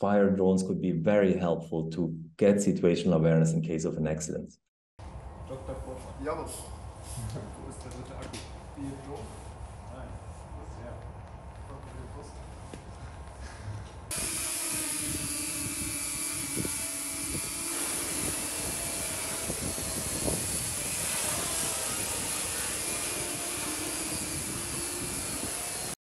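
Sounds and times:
drone propellers buzzing: 14.0s - 26.0s.

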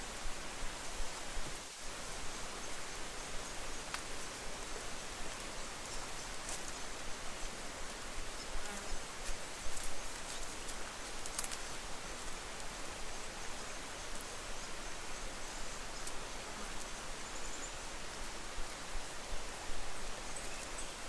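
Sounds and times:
rainforest ambience hiss: 0.0s - 21.0s
soft footsteps on leaf litter: 5.3s - 7.6s, 8.5s - 12.8s.

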